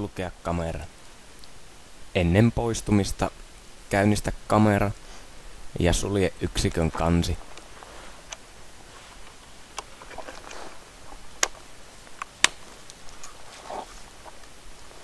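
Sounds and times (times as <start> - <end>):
soft handling rustle: 6.7 - 15.0.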